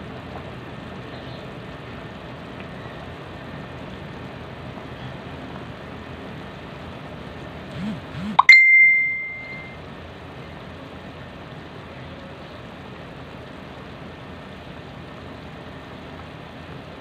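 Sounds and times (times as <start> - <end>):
soup boiling and bubbling: 0.0 - 7.7, 9.8 - 17.0
loud high ringing tone: 7.8 - 9.8.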